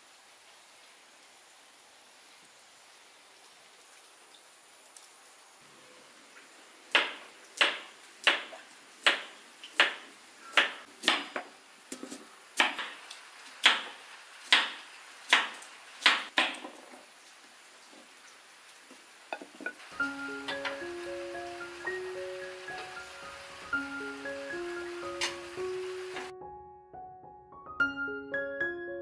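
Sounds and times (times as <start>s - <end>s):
knife chopping radish on board: 9.1s - 10.0s, 13.6s - 16.6s.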